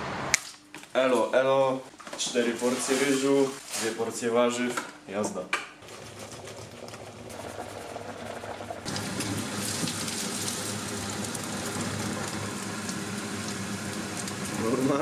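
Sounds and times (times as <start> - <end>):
vegetables sizzling in frying pan: 8.9 - 15.0.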